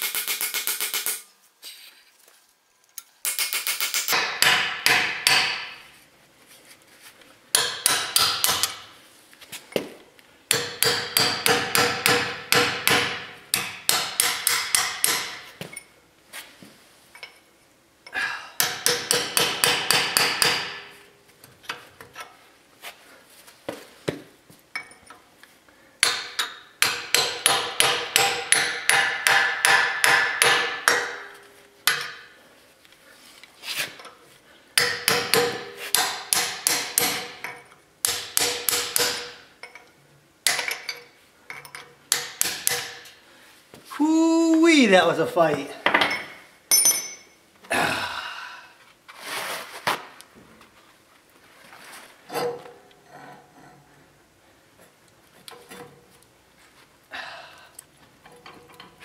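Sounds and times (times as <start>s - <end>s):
hammer striking steel punch: 3.3s - 5.8s, 7.6s - 8.9s, 10.5s - 15.5s, 18.6s - 20.9s, 26.0s - 31.3s, 34.8s - 39.4s, 42.1s - 43.1s.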